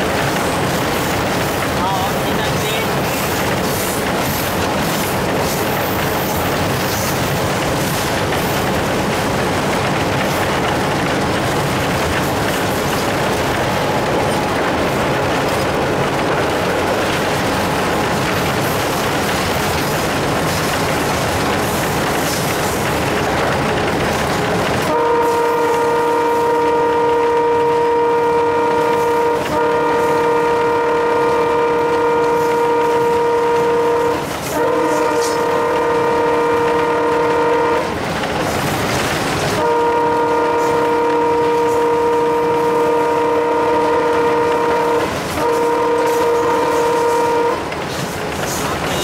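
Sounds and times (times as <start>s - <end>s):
locomotive engine running: 0.0s - 49.0s
locomotive horn blasts: 24.8s - 38.0s, 39.6s - 47.7s.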